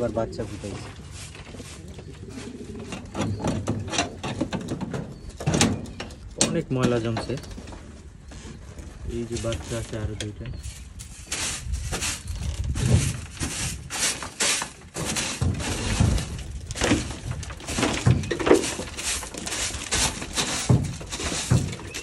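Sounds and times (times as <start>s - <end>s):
broom scraping wooden shelves: 0.0s - 22.0s
debris knocking: 11.9s - 22.0s.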